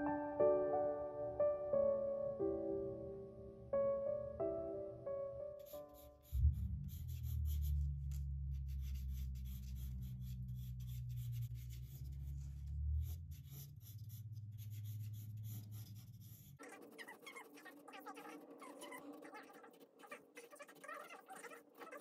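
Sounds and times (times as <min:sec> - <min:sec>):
pencil sketching on paper: 0:05.6 - 0:22.0
low steady hum: 0:06.4 - 0:14.4.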